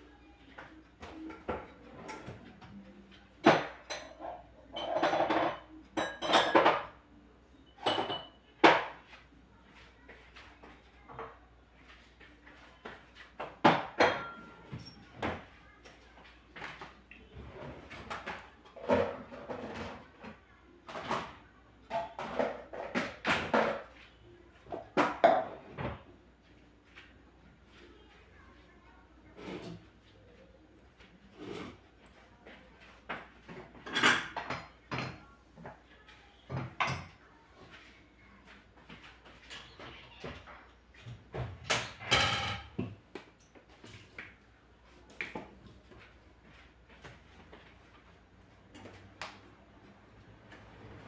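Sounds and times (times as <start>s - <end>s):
dishes and utensils clattering: 0.6s - 7.0s, 7.7s - 9.2s, 12.2s - 24.0s, 24.6s - 26.1s, 29.2s - 30.0s, 31.2s - 35.9s, 36.5s - 37.2s, 38.8s - 44.2s
kitchen objects knocking and clinking: 3.4s - 7.0s, 7.8s - 9.0s, 13.4s - 15.5s, 20.9s - 24.0s, 24.7s - 26.0s, 33.1s - 35.7s, 41.3s - 43.0s.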